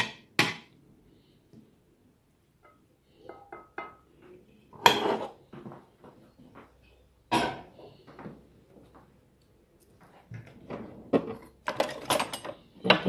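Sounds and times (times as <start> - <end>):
utensils clinking on a plate: 11.2 - 13.0.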